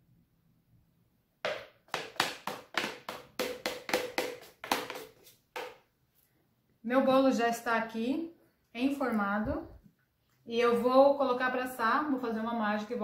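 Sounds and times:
kitchenware tapping on cake pan: 1.5 - 5.8.

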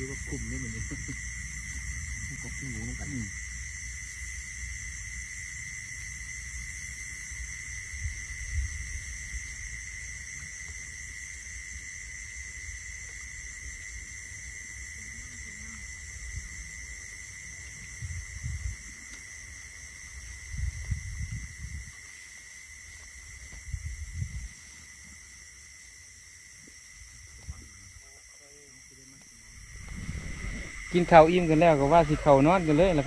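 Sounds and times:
night insects chirping: 0.0 - 33.0
low rumble: 29.5 - 33.0.

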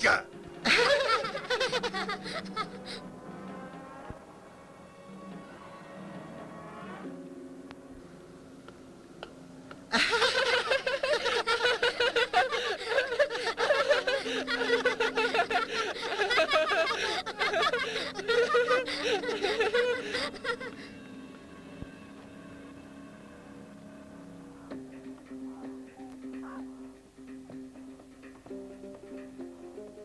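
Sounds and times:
faint background music: 0.0 - 30.0
cartoon character laughing: 0.7 - 3.0, 9.9 - 20.8.

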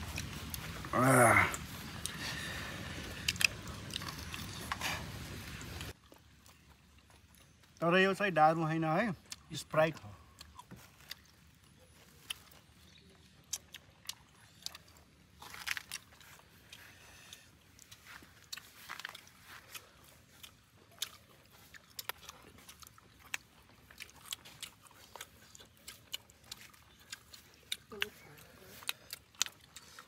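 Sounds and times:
person chewing: 0.0 - 7.8, 9.2 - 30.0
soft crunches: 10.2 - 30.0.

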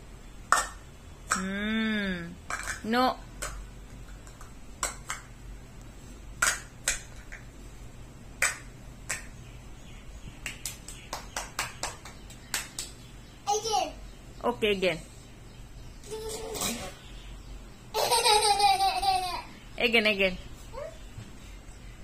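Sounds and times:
person saying no: 1.3 - 2.4
hand claps: 8.4 - 9.3, 10.4 - 13.0.

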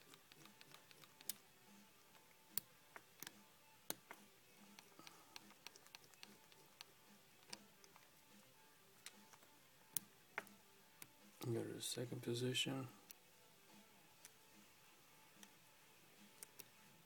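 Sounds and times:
watch crown winding clicks: 4.8 - 8.0.

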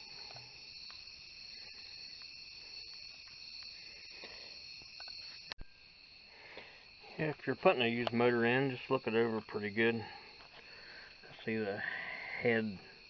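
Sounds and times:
faint ticks: 0.0 - 5.7
background hiss: 0.0 - 13.0.

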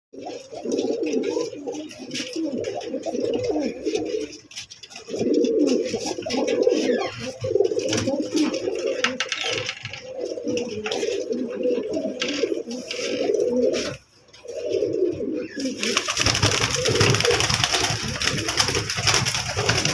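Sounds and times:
pigeons cooing: 0.2 - 19.9.

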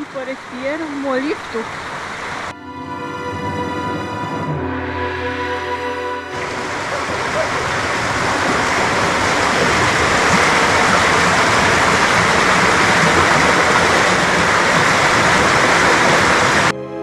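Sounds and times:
stream running over stones: 6.4 - 16.7.

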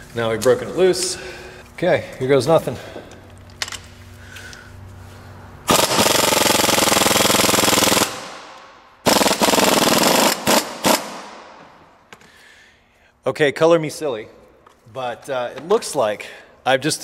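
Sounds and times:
impact wrench rattling: 3.3 - 3.9, 5.7 - 12.3.

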